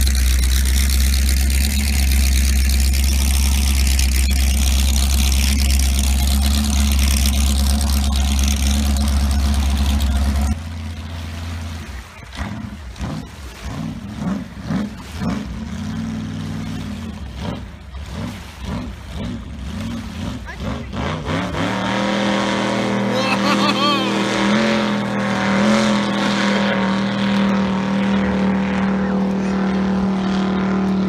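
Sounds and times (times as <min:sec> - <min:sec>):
boat engine idling: 0:00.0 - 0:31.0
boat engine revving: 0:00.0 - 0:31.0.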